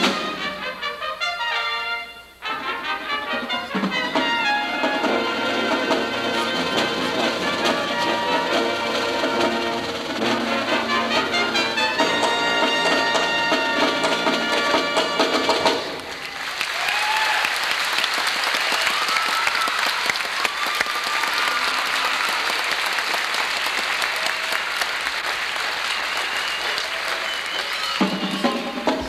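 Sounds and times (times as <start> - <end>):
brass band chord: 0.0 - 15.9
audience applauding: 11.1 - 29.0.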